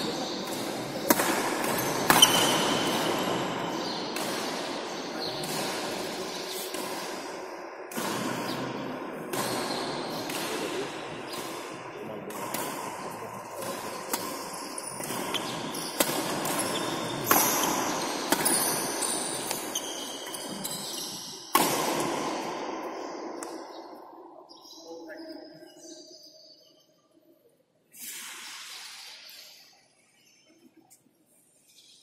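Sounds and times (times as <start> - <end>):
rackets hitting shuttlecock: 0.1 - 23.8.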